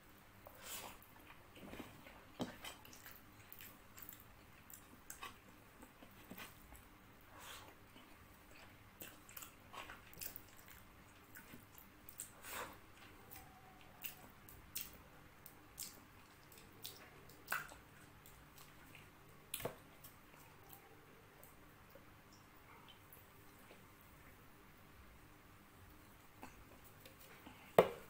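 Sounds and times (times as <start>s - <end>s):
wet chewing: 0.8s - 6.8s, 7.5s - 21.6s.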